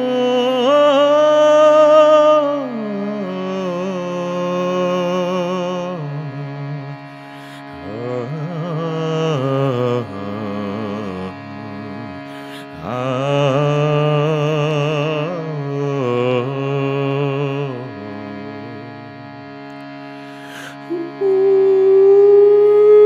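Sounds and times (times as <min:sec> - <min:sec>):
shruti box drone: 0:00.0 - 0:23.0
person breathing: 0:07.0 - 0:07.8, 0:12.2 - 0:12.8, 0:20.0 - 0:20.9
overtone singing: 0:07.6 - 0:19.3, 0:20.3 - 0:23.0.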